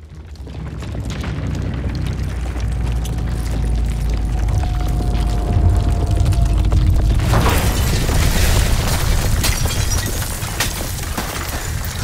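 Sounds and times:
deep rumble: 0.0s - 12.0s
crash of falling debris: 5.8s - 12.0s.

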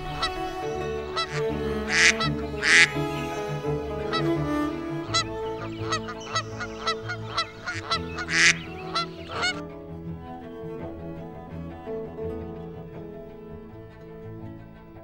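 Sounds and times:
waterfowl honking calls: 0.0s - 9.6s
music with long held notes: 0.0s - 15.0s.

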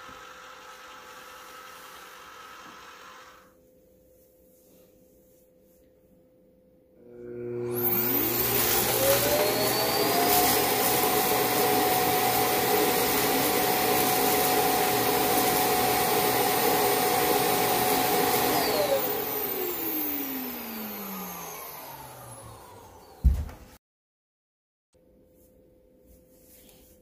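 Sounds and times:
suction motor whining: 0.0s - 3.5s, 7.0s - 23.2s.

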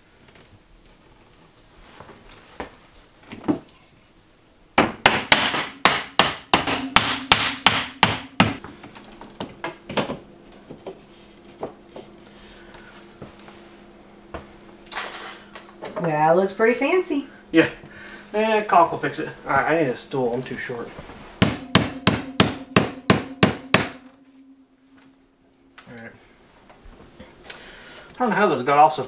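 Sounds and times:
hammer striking wood: 4.8s - 8.7s, 21.4s - 24.3s.

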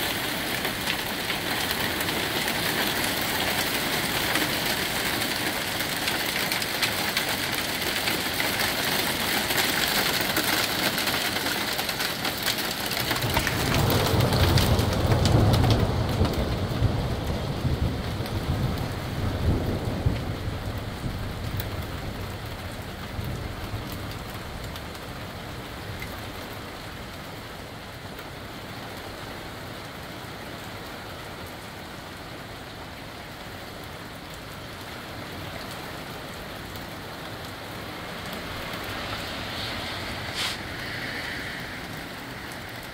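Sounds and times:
heavy rain falling: 0.0s - 42.9s
low rumble of thunder: 13.2s - 24.8s.

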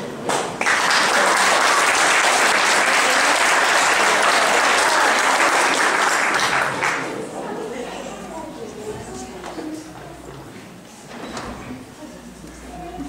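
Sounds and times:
audience applauding: 0.3s - 7.2s.

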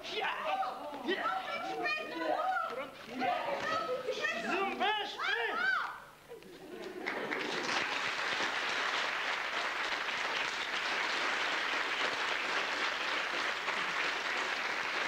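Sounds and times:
audience applauding: 6.8s - 15.0s.

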